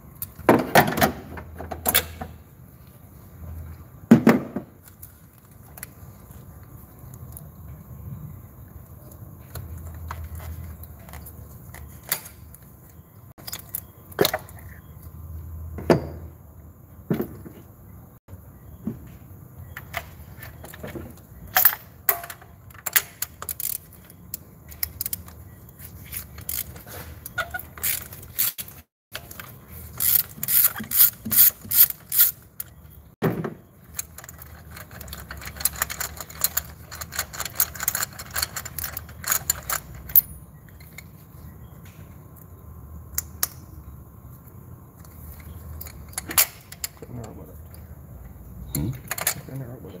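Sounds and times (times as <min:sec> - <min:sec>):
ratchet wrench clicking: 0:22.8 - 0:24.0, 0:26.1 - 0:26.8, 0:29.9 - 0:32.7.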